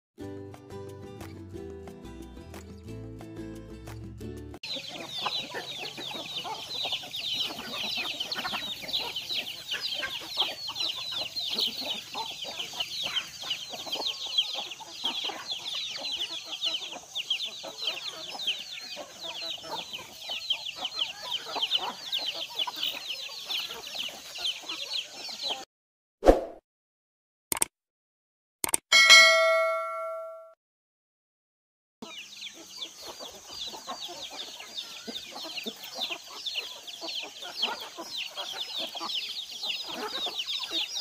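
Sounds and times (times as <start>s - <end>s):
chicks peeping: 4.6s - 25.6s, 32.0s - 41.0s
hens clucking: 4.6s - 25.6s, 32.0s - 41.0s.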